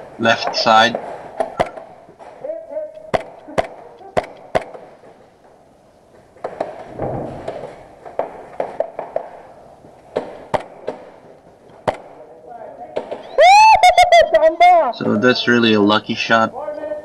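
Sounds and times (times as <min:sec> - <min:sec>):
scuffle of movement: 0:00.0 - 0:13.4
gas pistol shots popping: 0:01.0 - 0:02.4, 0:03.0 - 0:05.1, 0:10.1 - 0:12.2.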